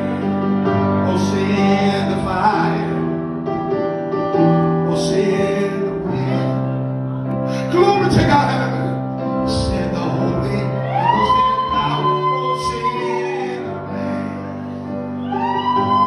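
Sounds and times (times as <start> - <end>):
held keyboard chords: 0.0 - 11.5
gospel singing: 7.7 - 14.4.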